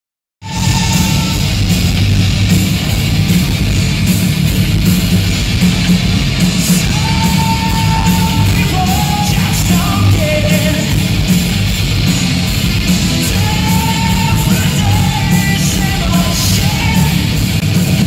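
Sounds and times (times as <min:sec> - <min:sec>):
long held high notes: 0:00.4 - 0:02.4
bass guitar: 0:00.4 - 0:18.0
distorted electric guitars: 0:00.4 - 0:18.0
pounding drums: 0:00.4 - 0:18.0.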